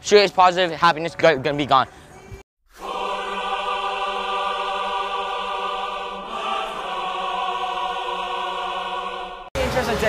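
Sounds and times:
choir-like voice chord: 2.7 - 9.6.

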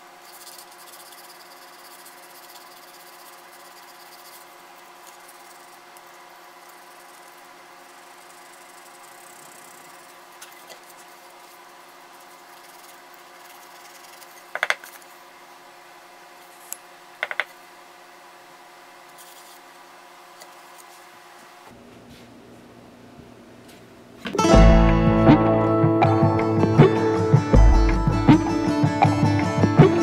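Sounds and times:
steady hum: 0.0 - 16.2, 24.5 - 30.0
sandpaper rubbing on wood: 0.1 - 6.0, 6.6 - 15.1.

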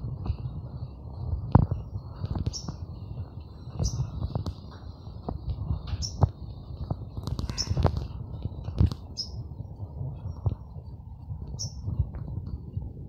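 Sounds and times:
small bird chirping: 1.8 - 4.6, 5.8 - 9.5, 11.5 - 11.9.

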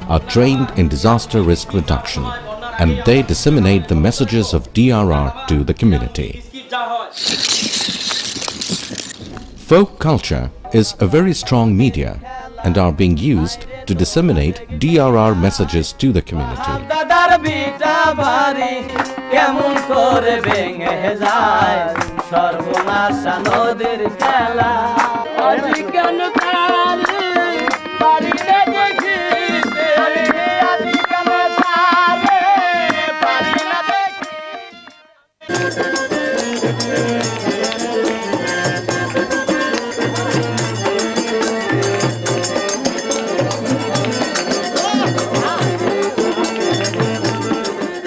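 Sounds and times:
harmonium tones: 0.0 - 6.5, 7.2 - 48.0
man singing: 0.0 - 7.2, 10.7 - 34.3, 41.7 - 48.0
folk melody: 25.2 - 48.0.

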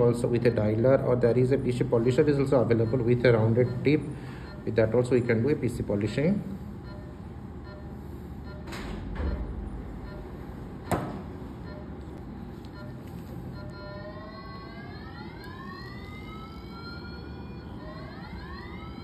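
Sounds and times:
steady low hum: 0.0 - 19.0
rising pitched machine tone: 13.6 - 19.0.

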